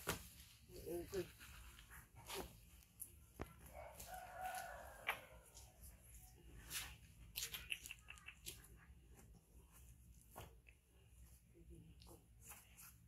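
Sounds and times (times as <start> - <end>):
faint rooster crow: 3.6 - 6.0.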